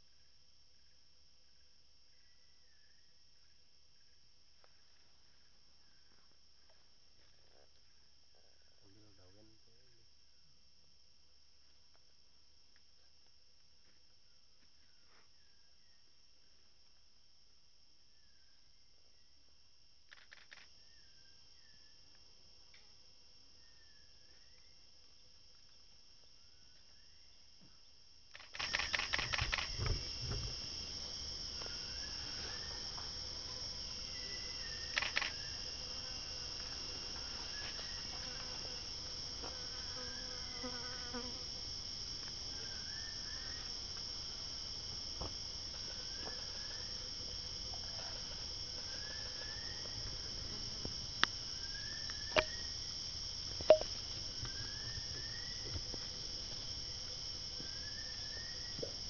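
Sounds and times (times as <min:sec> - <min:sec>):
insects droning: 0:00.0 - 0:59.0
sharp clicks: 0:20.1 - 0:20.7, 0:28.3 - 0:30.0, 0:34.9 - 0:35.4, 0:53.7 - 0:53.9.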